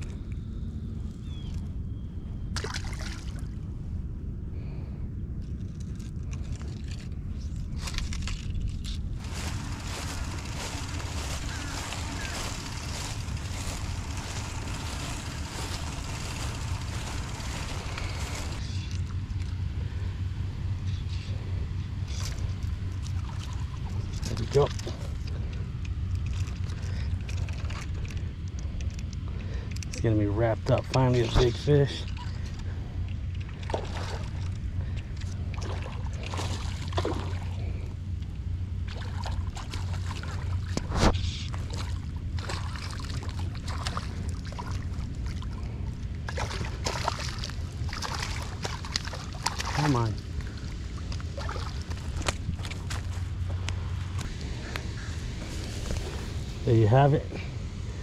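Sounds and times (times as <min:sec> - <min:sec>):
wind rumbling on microphone: 0:00.0 - 0:58.0
fish splashing in water: 0:33.4 - 0:34.5, 0:38.8 - 0:40.8, 0:41.5 - 0:53.0.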